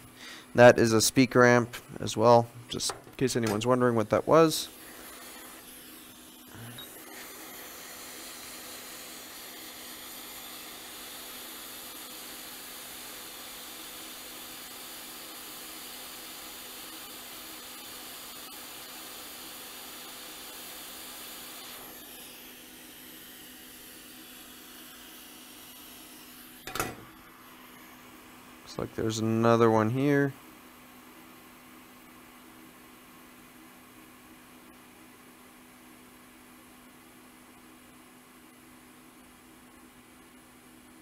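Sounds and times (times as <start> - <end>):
hot air station hissing: 3.6 - 28.2.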